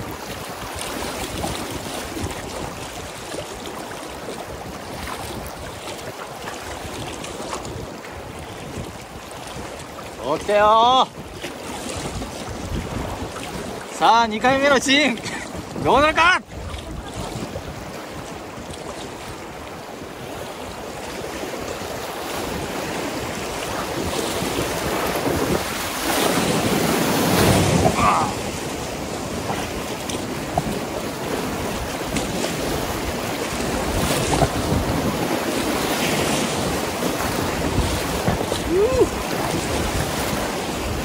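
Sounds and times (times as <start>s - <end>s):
whitewater rapids rushing: 0.0s - 8.1s, 13.2s - 41.0s
wind buffeting microphone: 0.0s - 14.0s, 15.2s - 41.0s.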